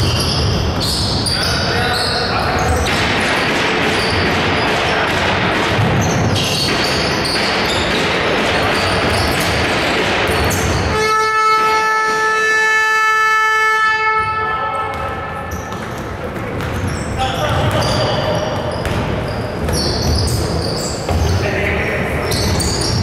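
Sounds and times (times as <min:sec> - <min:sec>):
basketball bouncing: 0:00.0 - 0:01.4, 0:02.6 - 0:11.0, 0:14.2 - 0:21.5
basketball game noise: 0:00.0 - 0:23.0
buzzer horn: 0:10.9 - 0:15.5.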